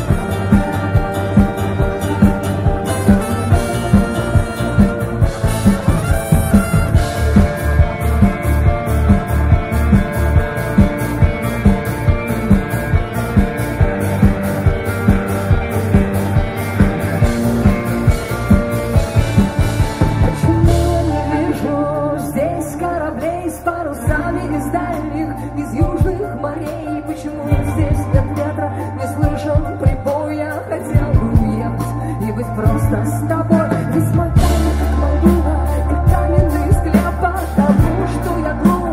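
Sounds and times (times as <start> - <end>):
bending guitar line: 0.0 - 25.2
live rock band: 0.0 - 38.9.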